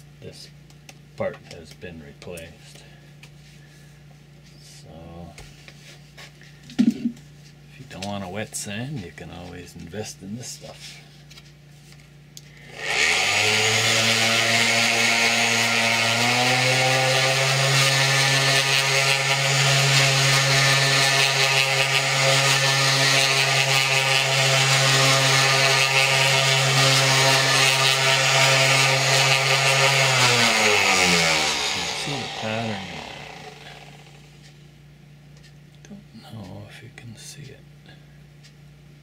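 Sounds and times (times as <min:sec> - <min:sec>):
orbit sander motor: 0:12.6 - 0:34.5.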